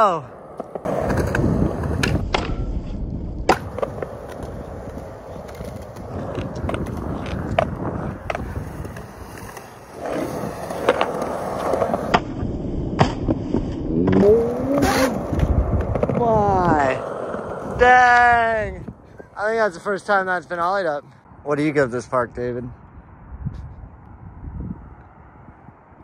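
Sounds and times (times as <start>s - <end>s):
skateboard wheels rolling on concrete: 0.0s - 21.1s
skateboard clacks: 3.5s - 12.3s.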